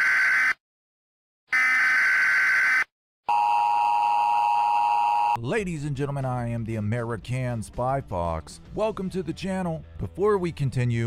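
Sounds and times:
electronic buzzer: 0:01.5 - 0:05.4.

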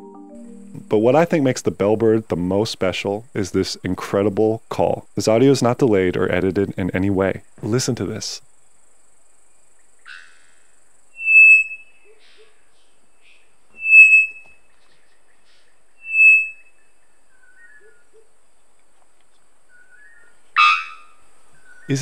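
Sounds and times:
bird calling loud high notes: 0:00.0 - 0:02.2, 0:11.1 - 0:12.6, 0:13.7 - 0:14.7, 0:16.0 - 0:16.8, 0:20.0 - 0:22.0
faint lower bird notes: 0:00.0 - 0:02.2, 0:09.9 - 0:18.3.

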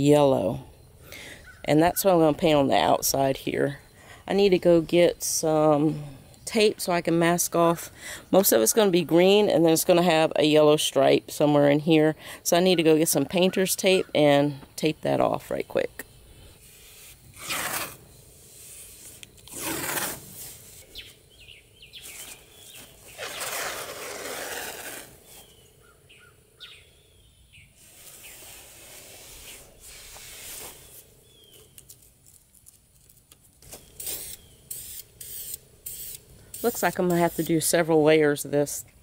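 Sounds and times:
birds chirping faintly: 0:00.0 - 0:16.6, 0:20.8 - 0:23.6, 0:25.2 - 0:32.2, 0:33.6 - 0:34.8
tape pulled off roll: 0:16.7 - 0:18.1, 0:18.7 - 0:20.8, 0:22.0 - 0:25.6.

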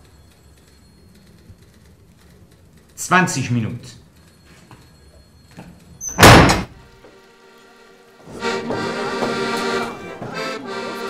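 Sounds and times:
accordion playing held chords: 0:06.8 - 0:11.0.

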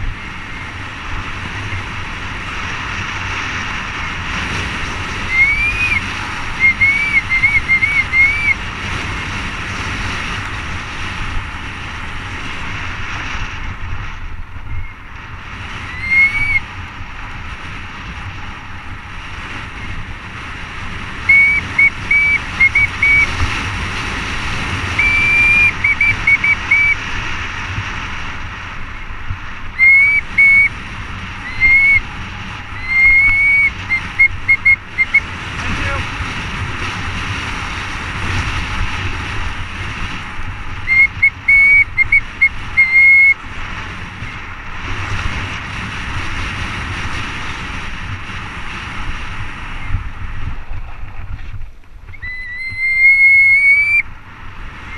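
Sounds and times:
wind and tyres on dirt: 0:00.0 - 0:54.9
bicycle disc brakes squealing: 0:05.2 - 0:08.6, 0:15.8 - 0:16.7, 0:21.3 - 0:23.4, 0:25.0 - 0:27.0, 0:29.8 - 0:30.7, 0:31.4 - 0:32.1, 0:32.7 - 0:35.2, 0:40.9 - 0:43.4, 0:52.1 - 0:54.0.

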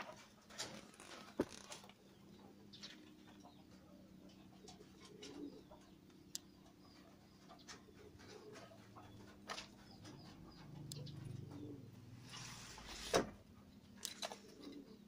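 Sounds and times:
pigeon cooing: 0:03.5 - 0:13.4, 0:14.0 - 0:15.0.

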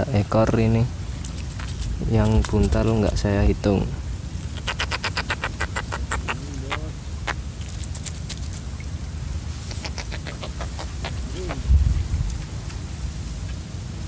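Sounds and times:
steady low rumble: 0:00.0 - 0:14.0
sharp clicks and patter: 0:01.2 - 0:03.2, 0:07.6 - 0:08.7.

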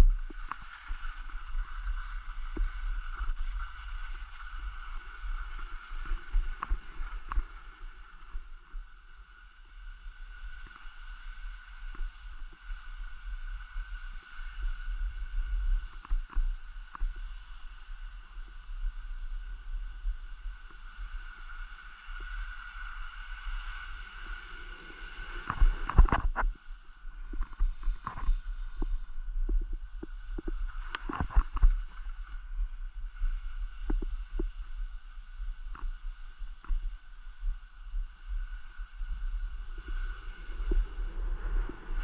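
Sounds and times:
skis scraping over snow: 0:00.0 - 0:42.0
wind rumble on microphone: 0:00.0 - 0:42.0
ski gear clicks and knocks: 0:25.4 - 0:26.6, 0:27.2 - 0:32.0.

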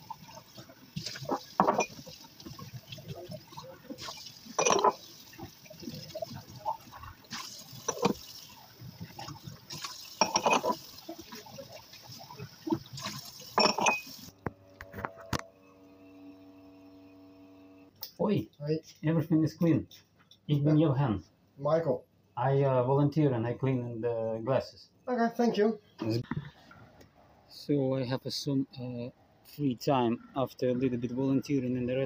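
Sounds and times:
tap water running into sink: 0:00.0 - 0:14.3
glasses clinking against sink: 0:01.2 - 0:02.1, 0:04.6 - 0:05.0, 0:07.8 - 0:08.2, 0:10.2 - 0:10.8, 0:13.6 - 0:14.2.

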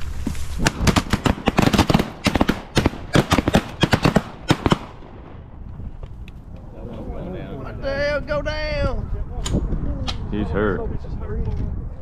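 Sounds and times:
shotgun blasts: 0:00.6 - 0:05.3.

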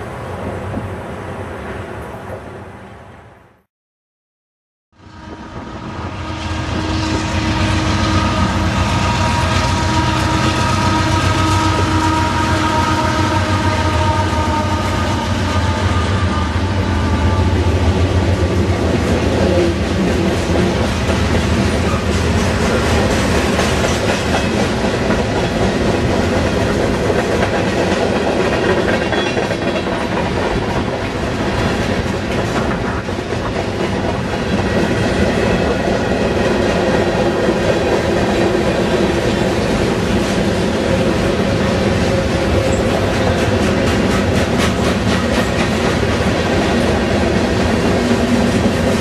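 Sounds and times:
freight train rolling past: 0:00.0 - 0:03.3, 0:05.0 - 0:49.0.

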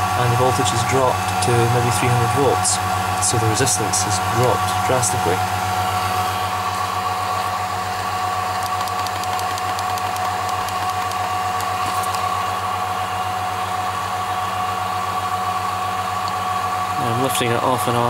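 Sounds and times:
vacuum pump humming: 0:00.0 - 0:18.0
faint rapid ticking: 0:08.6 - 0:11.7.

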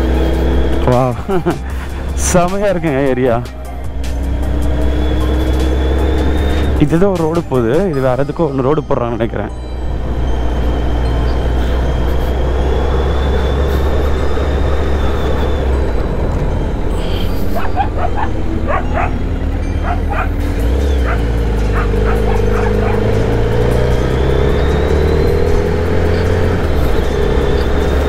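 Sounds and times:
motorcycle engine running: 0:00.0 - 0:08.0, 0:09.7 - 0:28.0
dog barking: 0:17.5 - 0:19.2, 0:19.8 - 0:20.4, 0:21.0 - 0:23.2.

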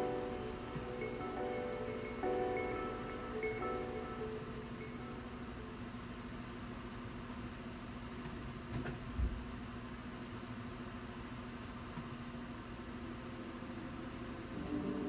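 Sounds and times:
low hum: 0:00.0 - 0:07.5.

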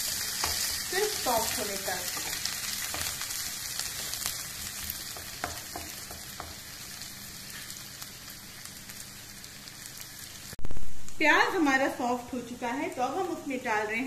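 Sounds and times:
onions sizzling in oil: 0:00.0 - 0:14.0
spatula scraping and tapping pan: 0:00.3 - 0:00.8, 0:02.1 - 0:03.3, 0:04.0 - 0:06.7.

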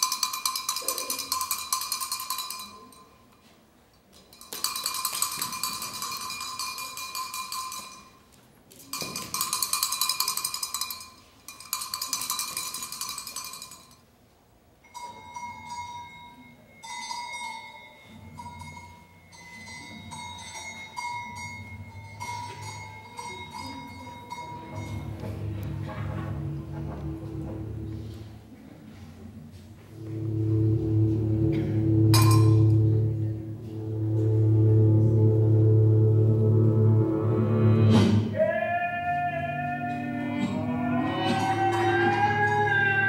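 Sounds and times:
metal bell ringing: 0:00.0 - 0:03.5, 0:04.3 - 0:08.3, 0:08.9 - 0:14.0, 0:14.8 - 0:25.6, 0:32.1 - 0:32.8
low hum: 0:30.0 - 0:38.0.

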